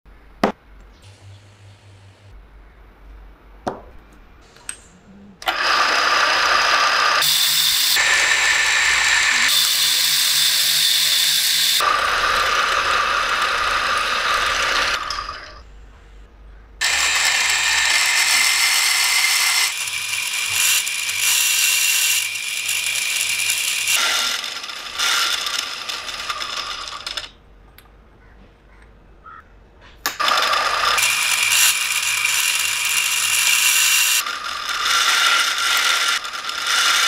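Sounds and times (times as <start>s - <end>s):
power tool running on metal: 5.4s - 15.6s, 16.8s - 27.4s, 30.2s - 37.0s.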